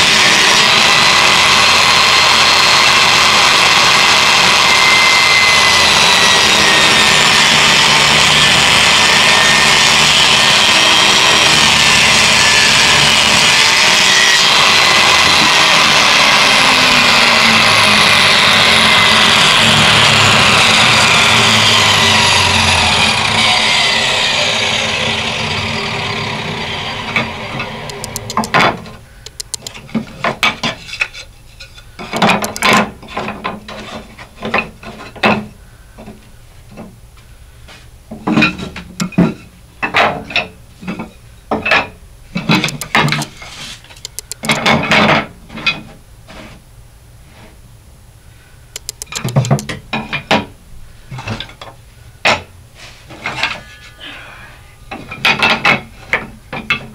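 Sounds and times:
saw blade whine winding down: 0.0s - 28.6s
wooden strips clacking: 27.2s - 36.9s, 38.2s - 46.0s, 48.8s - 50.5s.

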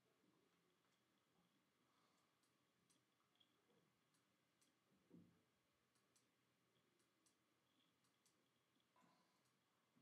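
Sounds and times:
computer mouse clicks: 2.1s - 4.9s, 5.9s - 9.7s.

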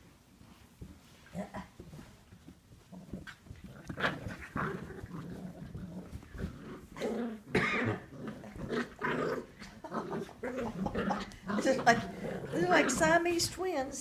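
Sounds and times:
puppies growling: 2.8s - 13.2s.

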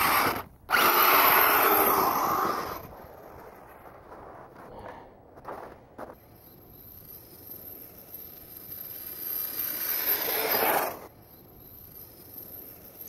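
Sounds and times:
electric motor of rc car: 0.0s - 2.9s, 8.6s - 11.1s.

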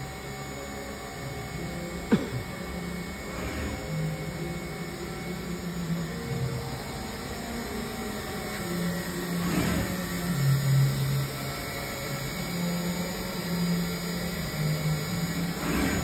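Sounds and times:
machine mechanical hum: 0.0s - 16.0s.

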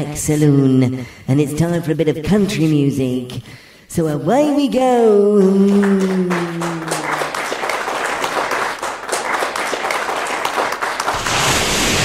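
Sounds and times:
audience applause: 5.6s - 11.8s.

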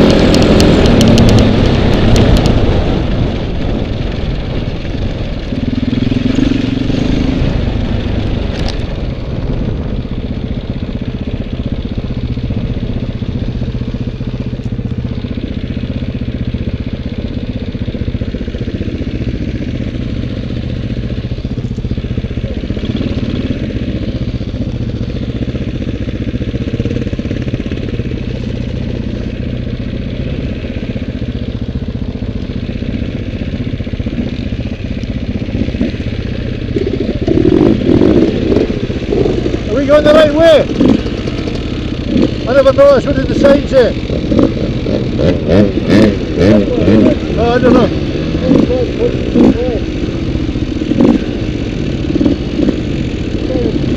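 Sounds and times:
dirt bike engine running: 0.0s - 53.9s.

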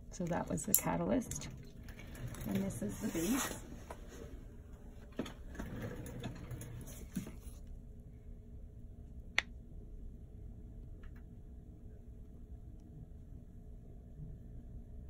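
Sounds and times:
soft rustling of gloved hands: 2.6s - 4.5s.

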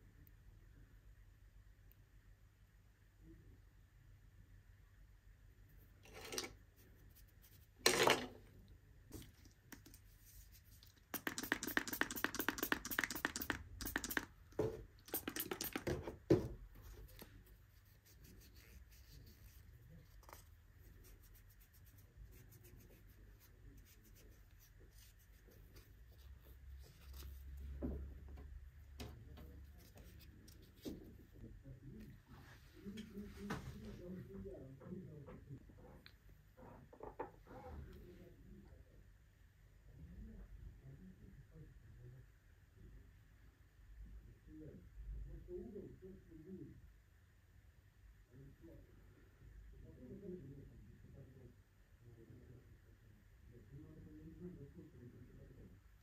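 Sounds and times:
faint handling noises: 5.8s - 38.3s
rapid scratching strokes: 10.1s - 14.3s, 15.1s - 16.0s.

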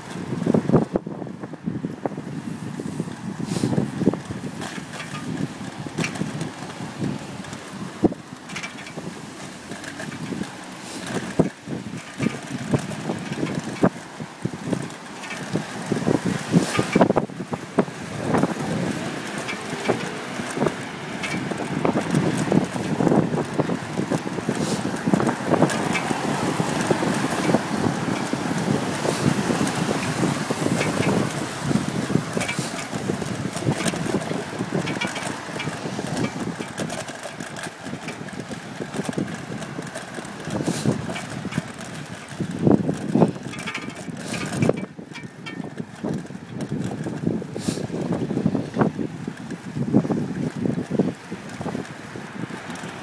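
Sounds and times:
road traffic: 0.0s - 53.0s
wind buffeting microphone: 0.0s - 53.0s
light rattling clicks: 4.1s - 14.0s, 18.3s - 49.8s.

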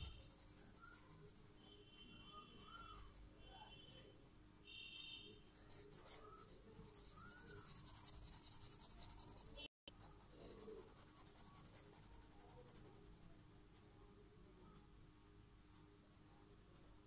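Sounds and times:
marker scratching on paper: 0.0s - 1.6s, 5.5s - 13.3s.

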